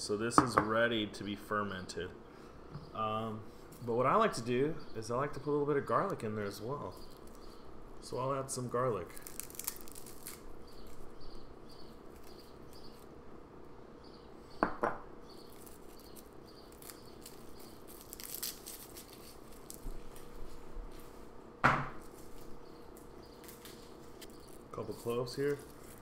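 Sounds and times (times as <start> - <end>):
garlic skins crackling: 5.0 - 13.2, 15.3 - 21.2, 22.0 - 26.0.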